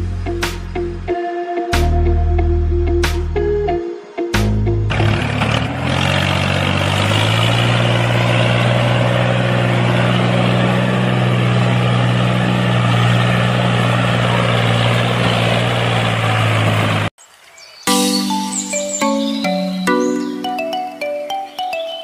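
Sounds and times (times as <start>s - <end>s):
tractor engine running: 4.7s - 17.1s.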